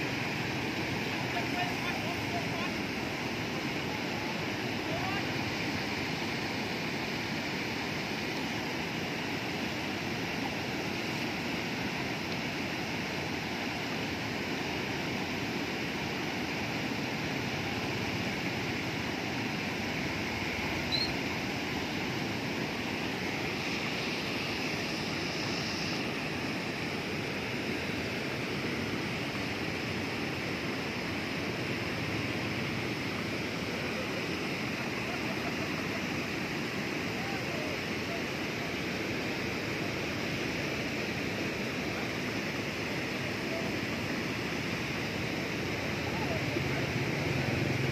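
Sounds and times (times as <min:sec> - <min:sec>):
water rushing over a weir: 0:00.0 - 0:47.9
short high chirp: 0:20.9 - 0:21.2.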